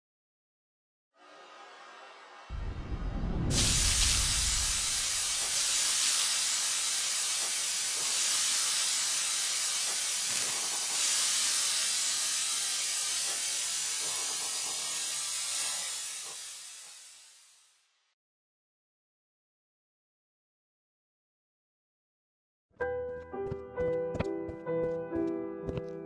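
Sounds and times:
low rumble: 2.5 - 5.5
loud steam-like hiss: 3.4 - 17.8.

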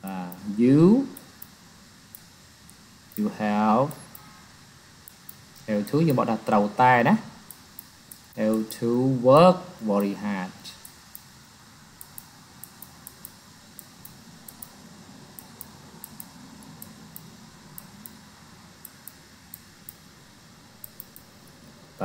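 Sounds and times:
low background hum: 0.0 - 22.0
stylus clicking: 1.1 - 3.3, 5.0 - 5.9, 7.4 - 8.9, 9.9 - 11.3, 12.0 - 14.8, 15.4 - 18.2, 18.8 - 20.1, 20.8 - 21.8.

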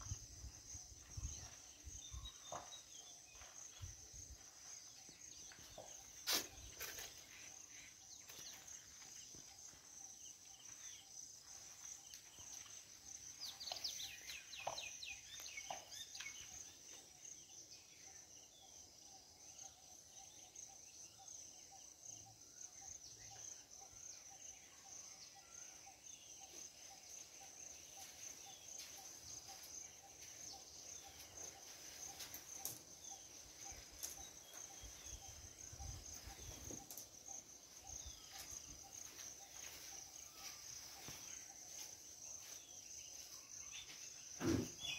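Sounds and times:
high-pitched insect chorus: 0.0 - 44.9
bird chirps: 13.3 - 44.9.

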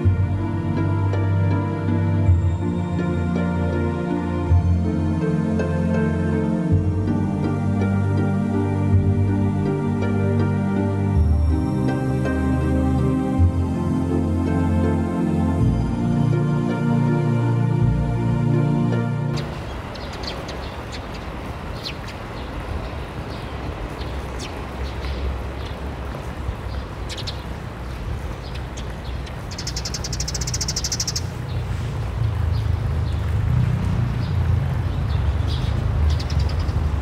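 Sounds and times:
small birds chirping: 19.4 - 33.5, 34.2 - 37.0.

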